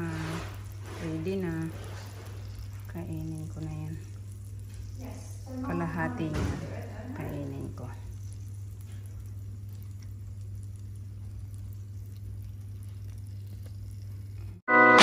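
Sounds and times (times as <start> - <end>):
steady low hum: 0.0 - 14.7
electronic organ music: 14.7 - 15.0.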